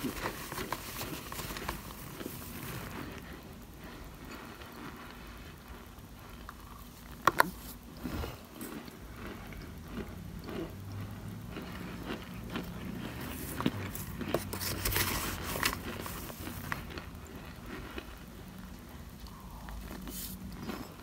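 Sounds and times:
spoon crunching cornstarch: 0:00.0 - 0:03.2, 0:06.3 - 0:18.2.

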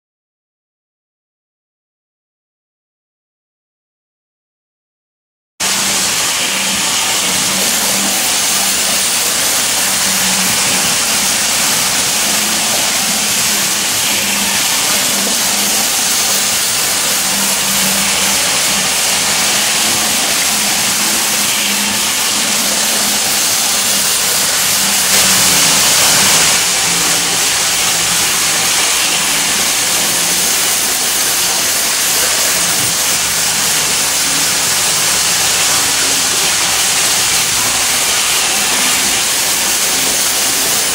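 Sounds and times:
toy trains whirring on track: 0:05.6 - 0:40.9.

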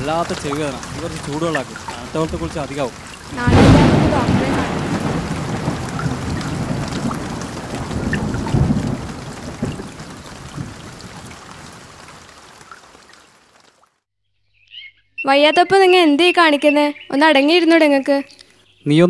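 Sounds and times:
thunder rumbling: 0:00.0 - 0:12.6
steady rain: 0:00.0 - 0:14.0.

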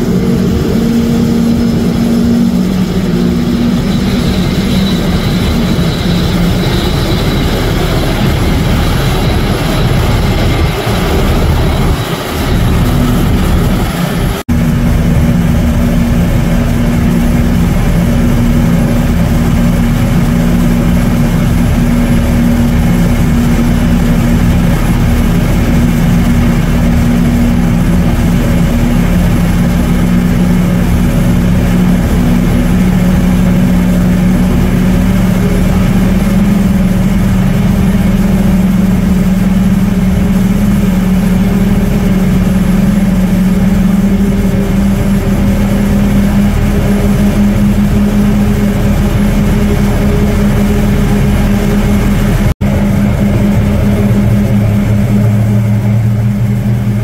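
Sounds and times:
jet engines running: 0:00.0 - 0:57.0.

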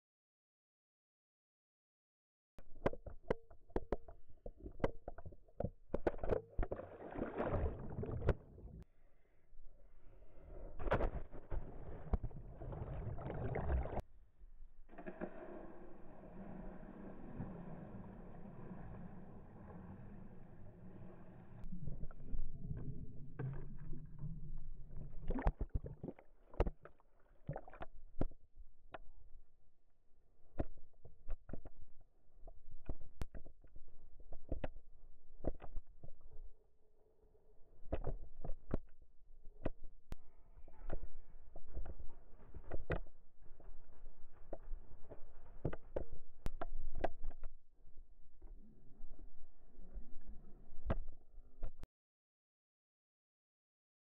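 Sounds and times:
rushing water: 0:06.8 - 0:08.8, 0:12.4 - 0:14.0.

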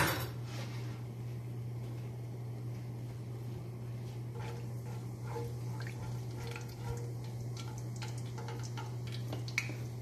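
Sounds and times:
spatula stirring in wok: 0:04.3 - 0:09.1
spices crackling in hot oil: 0:04.4 - 0:10.0.

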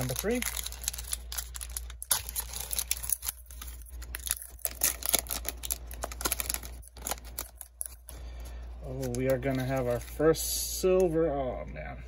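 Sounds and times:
foil wrapper crinkling and tearing: 0:00.0 - 0:10.5.

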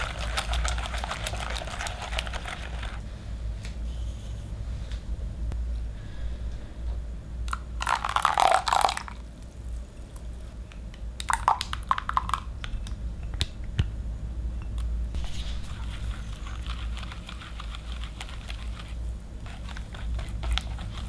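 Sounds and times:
liquid pouring into batter: 0:07.8 - 0:09.2.

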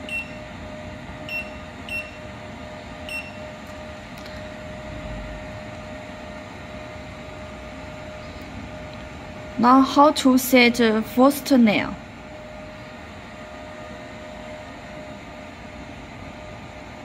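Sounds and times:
steady hum: 0:00.0 - 0:17.0
short beeps: 0:00.1 - 0:00.4, 0:01.3 - 0:02.2, 0:03.1 - 0:03.4.

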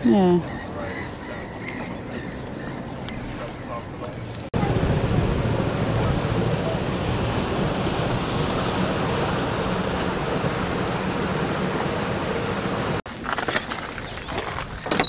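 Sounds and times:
steady rushing noise: 0:04.2 - 0:13.0.

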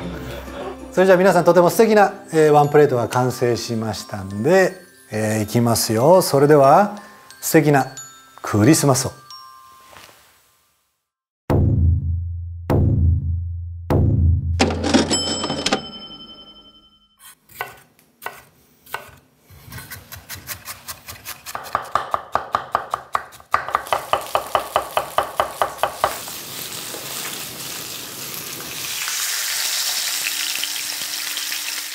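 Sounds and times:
short chime: 0:14.9 - 0:17.2
knife chopping on cutting board: 0:17.5 - 0:26.2
food sizzling in frying pan: 0:23.8 - 0:31.9.

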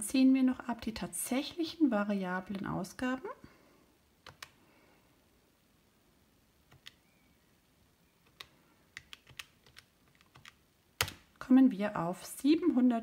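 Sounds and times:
calculator keys clicking: 0:08.3 - 0:11.2.

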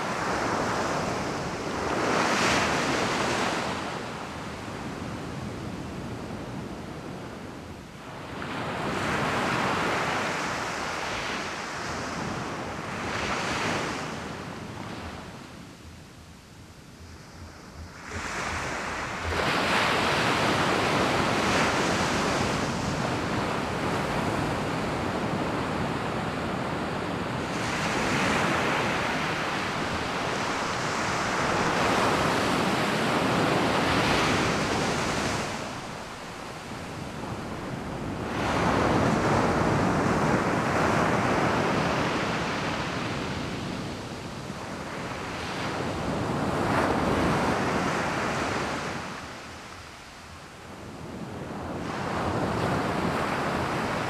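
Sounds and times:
sea waves breaking on beach: 0:18.0 - 0:50.3.

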